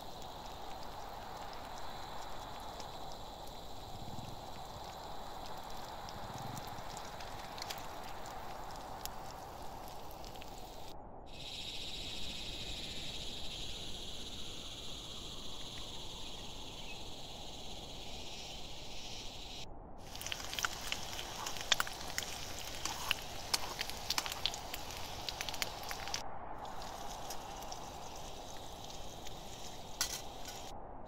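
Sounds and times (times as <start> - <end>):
food sizzling and spitting in oil: 20.0 - 30.7.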